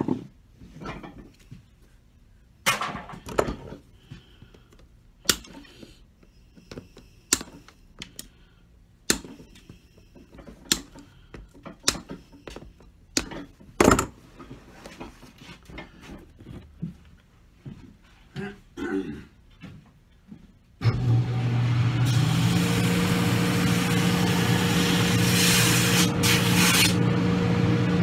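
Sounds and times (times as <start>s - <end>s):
hand tool clicking and knocking: 4.7s - 5.8s, 6.7s - 8.3s, 9.1s - 9.5s, 10.4s - 14.1s.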